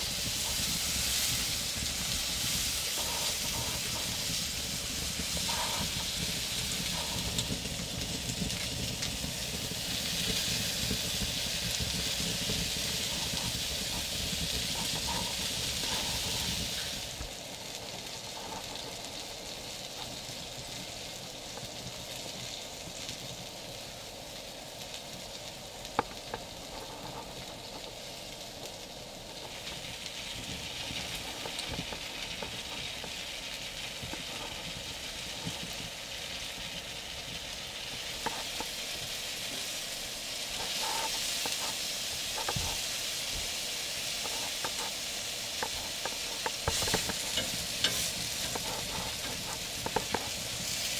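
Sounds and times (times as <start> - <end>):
fat spitting on embers: 0.0 - 20.1, 37.9 - 50.9
sausages sizzling on grill: 0.0 - 50.9.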